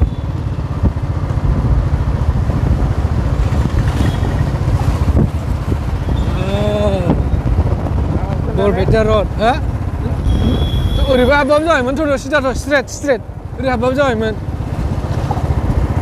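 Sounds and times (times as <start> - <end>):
wind noise on microphone: 0.0 - 11.5
motorcycle engine rumble: 0.0 - 16.0.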